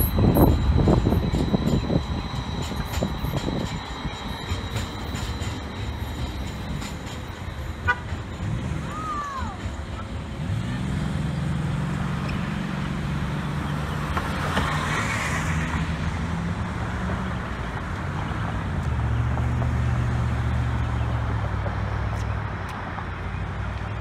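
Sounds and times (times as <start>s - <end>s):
traffic engine hum: 0.0s - 24.0s
car passing: 10.2s - 22.2s.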